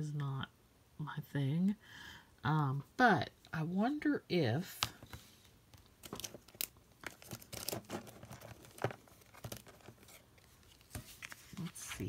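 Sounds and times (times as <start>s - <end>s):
paper or plastic crinkling: 6.0s - 12.0s.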